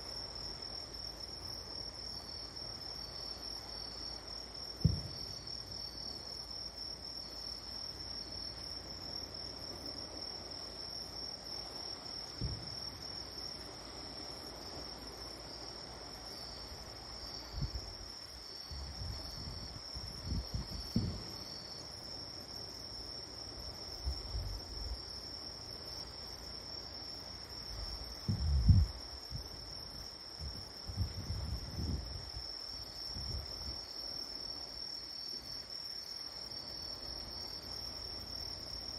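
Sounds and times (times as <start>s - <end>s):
distant fireworks booming: 4.8s - 5.6s, 12.3s - 13.2s, 20.2s - 21.6s.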